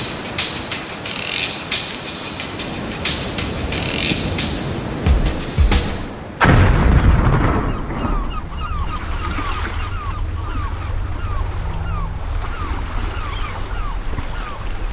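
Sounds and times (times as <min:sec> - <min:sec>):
wind rumbling on microphone: 0:06.1 - 0:14.9
bird chirping: 0:07.4 - 0:14.9.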